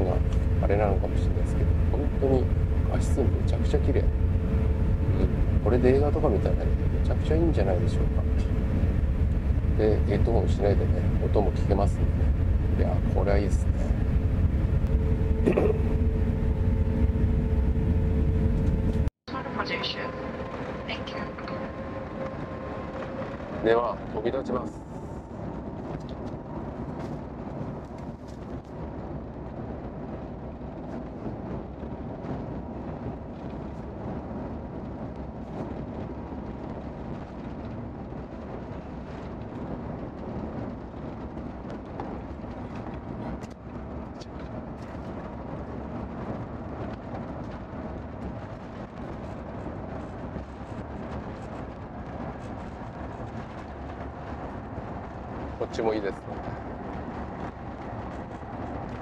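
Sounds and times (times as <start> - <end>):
aircraft cabin rumble: 0.0 - 59.0
faint steady hum: 0.0 - 59.0.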